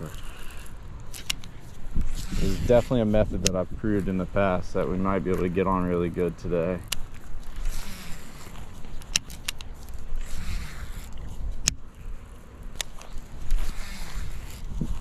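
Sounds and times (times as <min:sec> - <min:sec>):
fishing reel clicks: 0:00.0 - 0:03.6, 0:06.8 - 0:12.1, 0:12.7 - 0:15.0
wind rumbling on microphone: 0:00.0 - 0:15.0.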